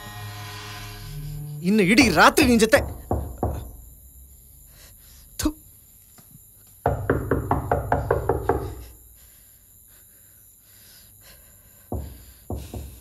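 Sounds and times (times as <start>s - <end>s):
rapid knocking: 2.8s - 3.8s.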